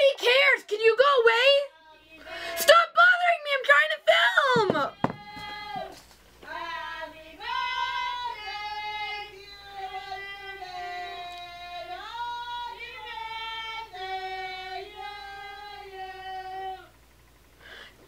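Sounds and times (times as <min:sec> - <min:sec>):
person singing unaccompanied: 0:04.5 - 0:17.0.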